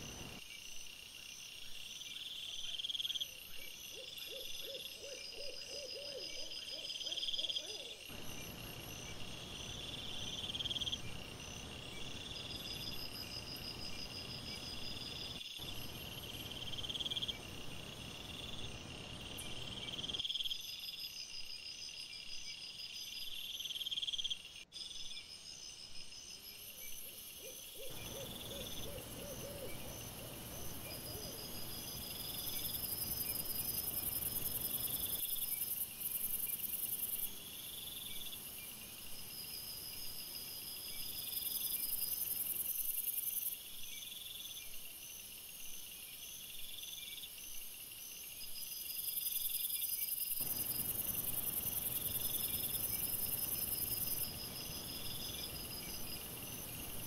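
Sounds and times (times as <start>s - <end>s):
insects trilling: 0.0s - 0.4s, 26.4s - 57.0s
low rapidly repeated insect call: 0.0s - 57.0s.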